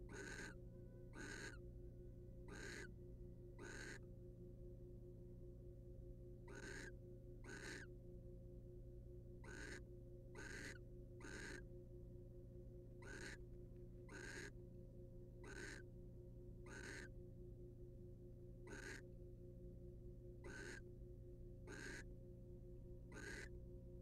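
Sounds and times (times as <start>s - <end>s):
faint electrical hum: 0.0s - 24.0s
owl raspy hissing calls: 0.1s - 1.6s, 2.5s - 2.9s, 3.6s - 4.0s, 6.5s - 7.9s, 9.4s - 9.8s, 10.4s - 11.6s, 13.0s - 13.4s, 14.1s - 14.5s, 15.4s - 15.8s, 16.7s - 17.1s, 18.7s - 19.0s, 20.4s - 20.8s, 21.7s - 22.0s, 23.1s - 23.5s.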